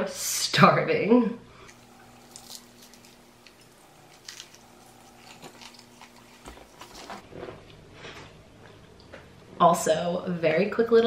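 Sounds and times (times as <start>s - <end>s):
biting and chewing toast: 1.6s - 7.7s
toast tearing with crackling: 1.7s - 7.3s.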